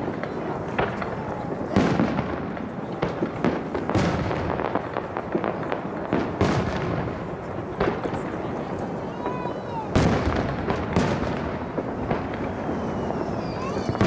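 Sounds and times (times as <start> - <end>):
firework crackling: 0.0 - 14.0.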